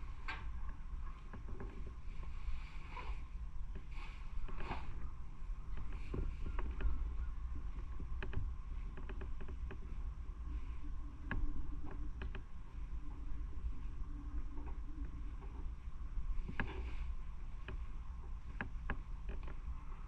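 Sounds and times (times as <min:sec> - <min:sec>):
wind on microphone: 0:00.0 - 0:20.0.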